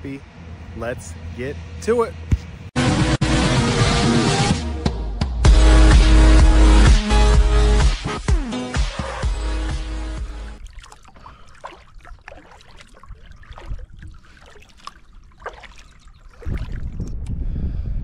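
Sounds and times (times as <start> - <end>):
kayak paddle strokes in water: 10.2 - 17.1
water drips and splashes: 10.2 - 17.3
wind buffeting microphone: 11.3 - 18.0.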